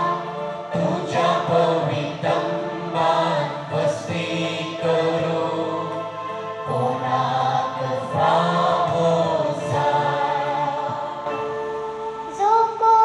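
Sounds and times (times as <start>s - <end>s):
boy singing into a microphone: 12.3s - 13.0s.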